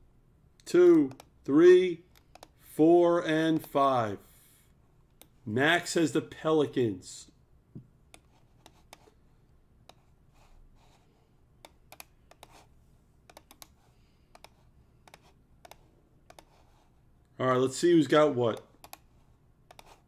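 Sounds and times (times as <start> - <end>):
keyboard and mouse clicks: 0.9 - 1.5, 2.1 - 2.6, 11.6 - 12.6, 13.3 - 16.6, 18.5 - 20.0.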